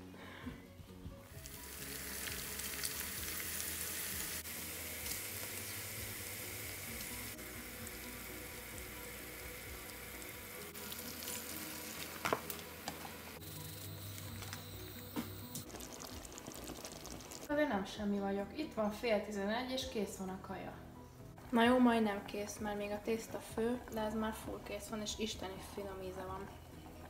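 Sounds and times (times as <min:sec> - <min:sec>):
meat sizzling in a frying pan: 0:01.3 - 0:14.0.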